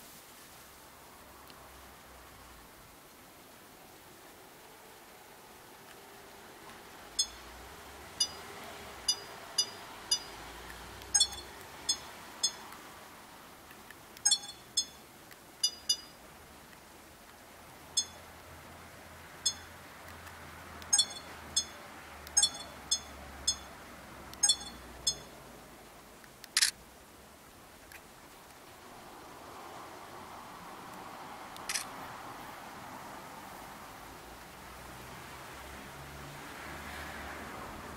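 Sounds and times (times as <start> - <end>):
camera button beeps: 8.2 - 8.4, 11.1 - 12.6, 14.2 - 15.0, 15.6 - 16.1, 20.9 - 23.7, 24.4 - 25.3.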